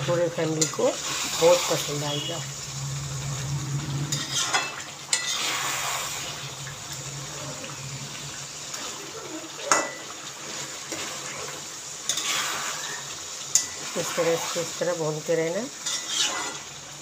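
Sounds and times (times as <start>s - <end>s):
curry sizzling: 0.0s - 17.0s
spatula scraping a pan: 0.4s - 6.4s, 9.7s - 14.7s, 15.8s - 16.7s.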